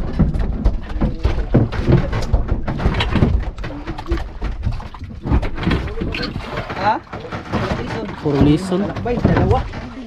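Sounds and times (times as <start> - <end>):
fish flapping against boat deck: 0.0 - 10.0.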